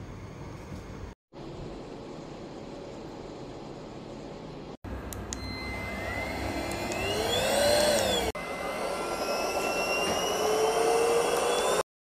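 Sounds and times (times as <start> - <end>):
stick vacuum whine: 5.3 - 11.9.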